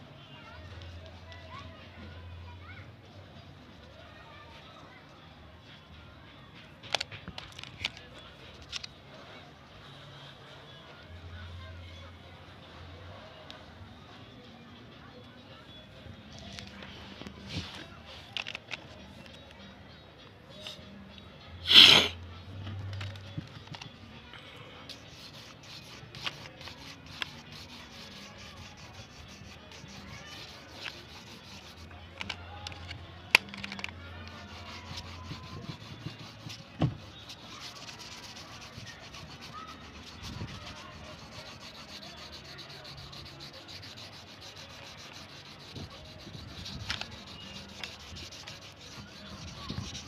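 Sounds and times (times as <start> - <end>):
crayon scraping on paper: 24.9 - 31.9, 34.2 - 50.0.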